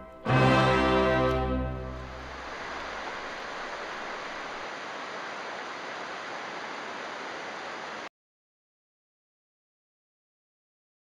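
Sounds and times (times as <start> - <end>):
whitewater rapids rushing: 1.8 - 8.1.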